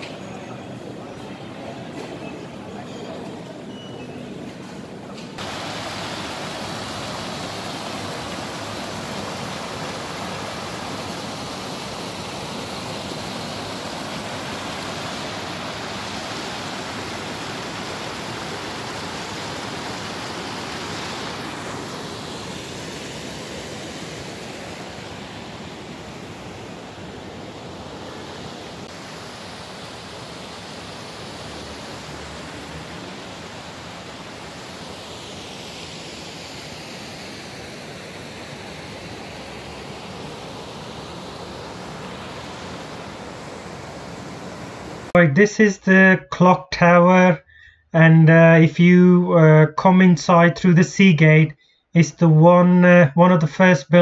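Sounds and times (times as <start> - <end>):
loud rushing hiss: 5.4 - 45.1.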